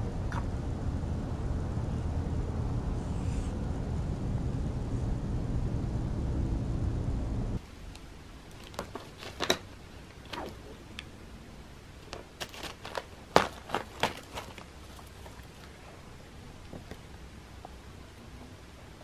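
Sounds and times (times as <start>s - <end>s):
low outdoor rumble: 0.0s - 19.0s
paper coffee filter crinkling: 8.5s - 9.7s, 12.0s - 15.8s.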